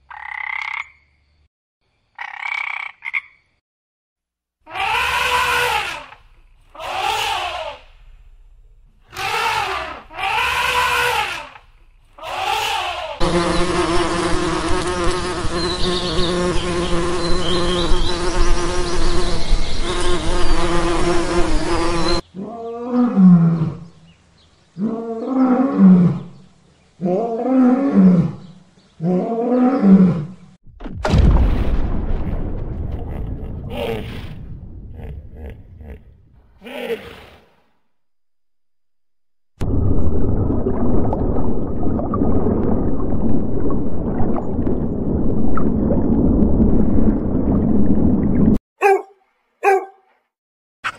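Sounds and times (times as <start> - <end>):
short animal calls: 4.7 - 7.9, 9.1 - 13.2, 48.8 - 50.2
deep drawn-out animal calls: 4.7 - 8.0, 9.1 - 13.2, 33.0 - 37.7
bumblebees buzzing: 12.4 - 22.2.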